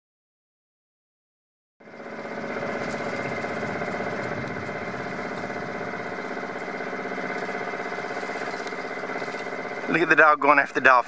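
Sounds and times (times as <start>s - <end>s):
boat engine running: 1.8s - 11.0s.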